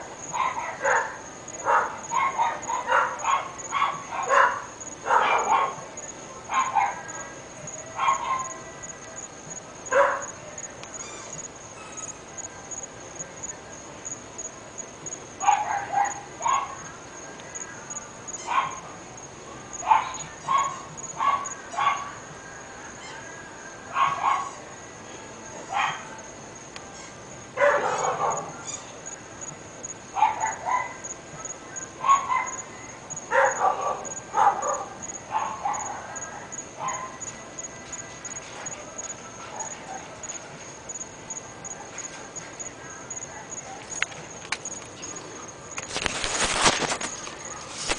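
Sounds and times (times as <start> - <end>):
dogs barking: 0.2 - 8.7, 9.9 - 10.4, 15.4 - 16.9, 18.4 - 19.0, 19.8 - 22.2, 23.9 - 24.7, 25.7 - 26.2, 27.6 - 28.6, 30.1 - 37.4, 39.4 - 40.4.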